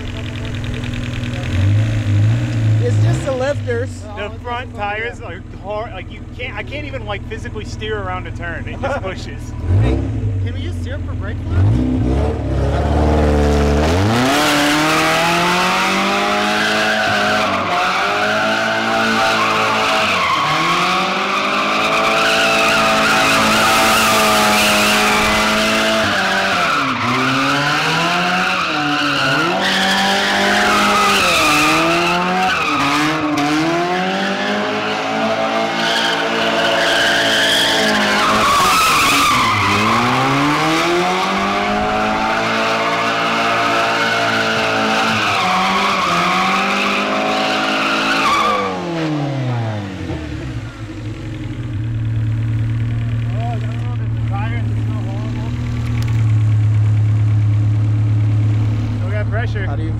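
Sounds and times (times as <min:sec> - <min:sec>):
car engine revving hard: 0:09.5 - 0:10.5, 0:11.3 - 0:59.2
tyres squealing: 0:16.5 - 0:33.5, 0:34.5 - 0:48.9.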